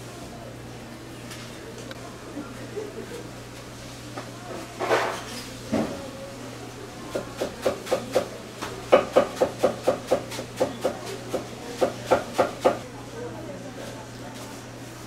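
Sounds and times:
knife chopping on wooden board: 8.9 - 12.8.

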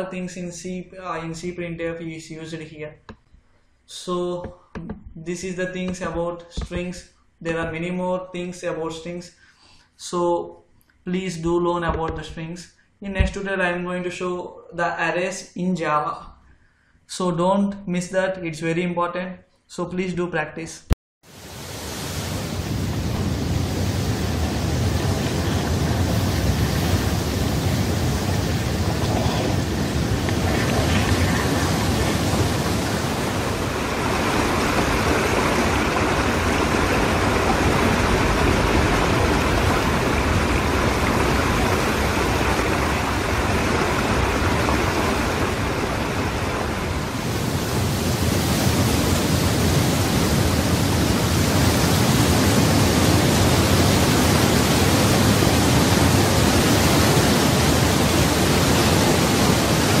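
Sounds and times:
waterfall rushing: 21.3 - 60.0.

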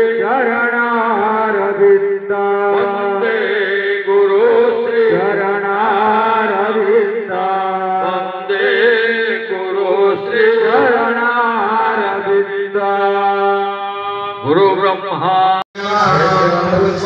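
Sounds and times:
man singing a chant: 0.0 - 17.0
steady held drone: 15.8 - 17.0.

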